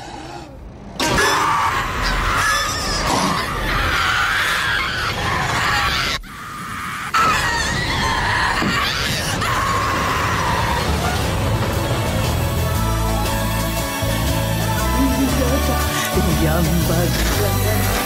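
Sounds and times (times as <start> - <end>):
distorted demonic shrieking: 0.0 - 11.7.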